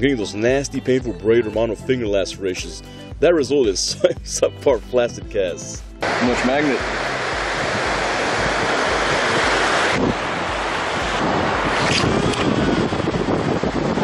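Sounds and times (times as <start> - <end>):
ocean surf washing in: 6.0 - 14.0
wind buffeting microphone: 6.0 - 14.0.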